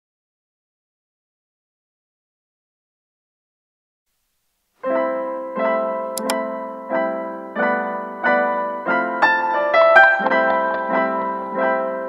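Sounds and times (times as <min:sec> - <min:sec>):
gentle piano chords: 0:04.8 - 0:12.0.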